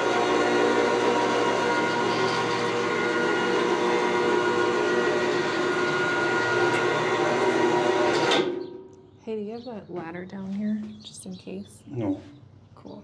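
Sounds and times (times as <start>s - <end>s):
elevator electric drive whining: 0.0s - 8.9s.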